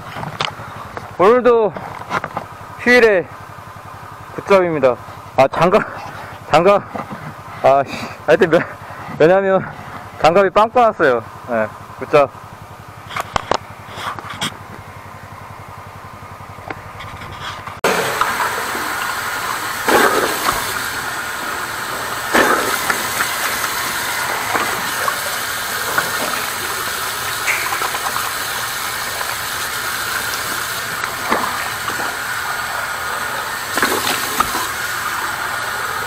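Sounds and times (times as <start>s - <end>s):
rush of water: 17.8s - 36.0s.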